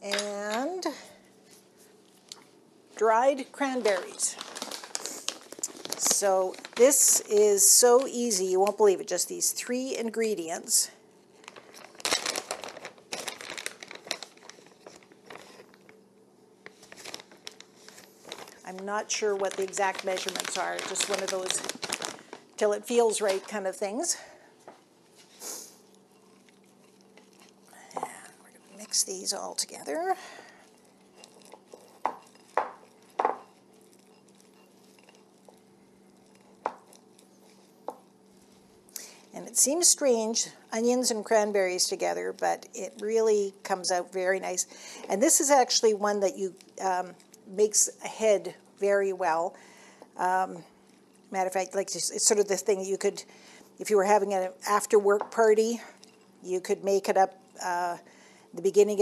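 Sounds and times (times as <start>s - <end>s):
plastic bag crinkling: 3.0s - 8.8s, 11.4s - 16.0s, 16.6s - 24.4s, 25.1s - 47.5s
utensil stirring in glass bowl: 25.2s - 38.9s, 50.7s - 52.4s, 55.0s - 56.4s.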